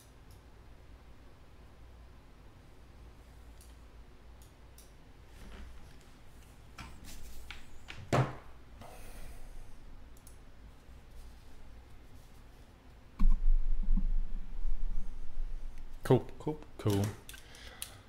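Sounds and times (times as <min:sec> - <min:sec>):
small handling clicks: 0:16.8 - 0:18.0.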